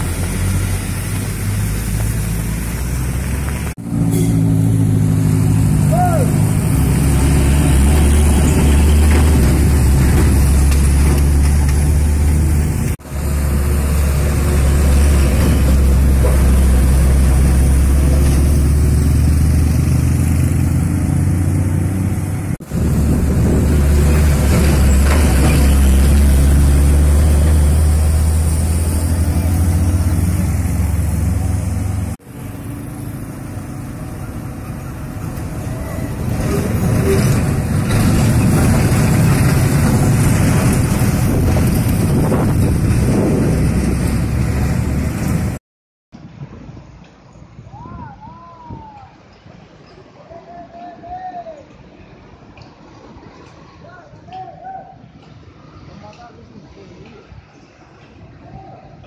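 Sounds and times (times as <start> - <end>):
diesel truck engine drone: 0.0 - 45.6.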